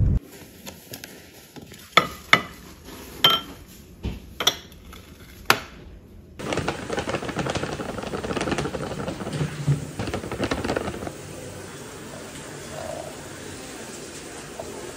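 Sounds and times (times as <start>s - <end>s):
ceramic tableware clinking: 3.2s - 3.6s
paper bag crinkling: 6.4s - 11.7s
flour pouring into bowl: 6.4s - 12.2s.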